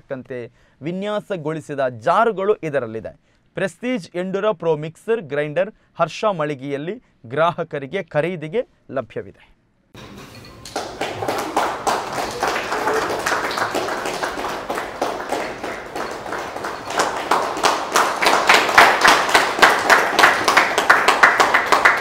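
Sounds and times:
people applauding: 10.0 - 22.0.

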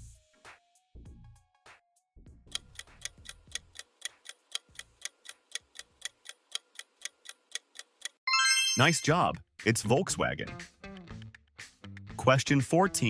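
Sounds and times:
clock ticking: 2.5 - 8.2.

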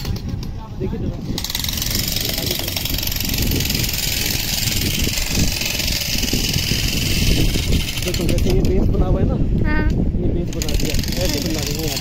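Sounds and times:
construction machinery running: 0.0 - 9.0, 10.4 - 12.0
loud hissing rattling noise: 1.2 - 9.0, 10.5 - 12.0.

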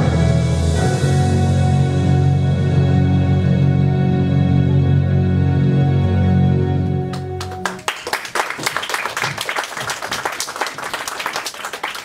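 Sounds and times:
held chords of stage music: 0.0 - 8.1
audience applause: 7.1 - 12.0.

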